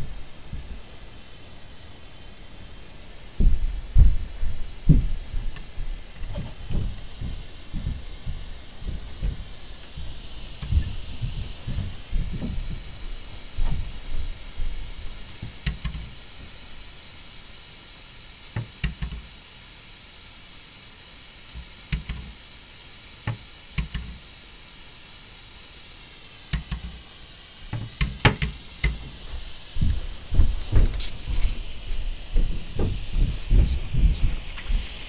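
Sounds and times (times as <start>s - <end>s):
steady high hiss: 0.0s - 35.0s
knocks and thuds in a house: 3.4s - 12.9s, 27.7s - 34.8s.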